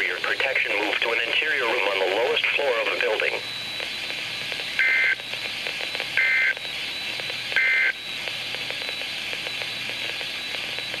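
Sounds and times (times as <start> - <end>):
radio hiss: 0.0 - 6.5
harsh two-tone data bursts: 0.0 - 11.0.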